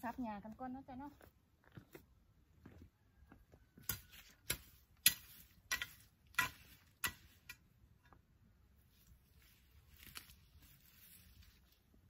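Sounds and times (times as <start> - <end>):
garden hoe chopping grass: 3.8 - 7.7.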